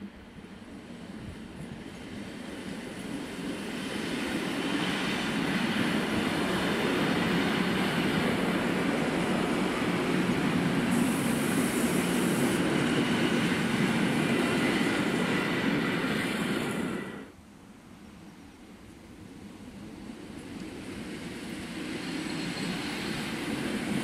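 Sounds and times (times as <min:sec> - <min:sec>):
train wheels rumbling on rails: 0:00.0 - 0:17.4, 0:19.2 - 0:24.0
brief high hiss: 0:10.9 - 0:12.6.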